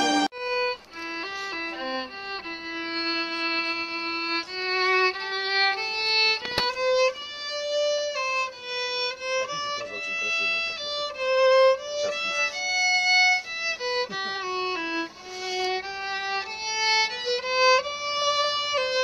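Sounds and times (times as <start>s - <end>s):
violin playing slow melody: 0.0s - 19.0s
sharp click: 6.4s - 6.8s.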